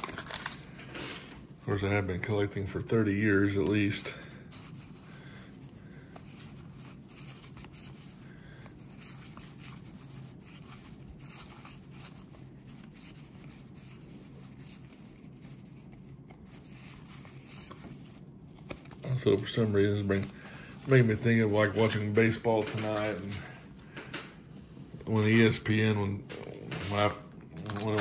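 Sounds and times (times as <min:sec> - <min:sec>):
cardboard cards rustling and clicking: 0:00.0 - 0:01.5, 0:03.0 - 0:28.0
low room hum: 0:00.0 - 0:28.0.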